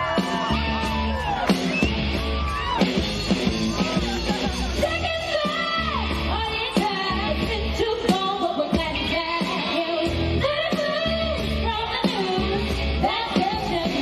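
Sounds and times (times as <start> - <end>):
amplified backing music with bass: 0.0 - 14.0
woman singing: 4.8 - 14.0.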